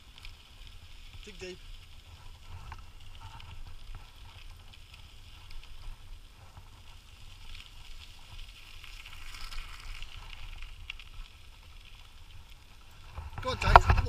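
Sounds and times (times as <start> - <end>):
faint crunching hiss: 0.0 - 14.0
wind on microphone: 13.1 - 14.0.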